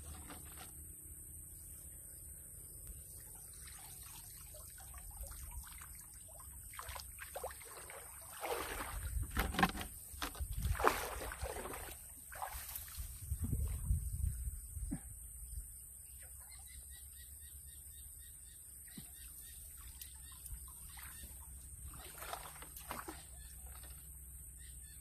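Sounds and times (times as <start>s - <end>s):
shallow water sloshing and splashing: 3.1s - 13.8s, 18.9s - 24.2s.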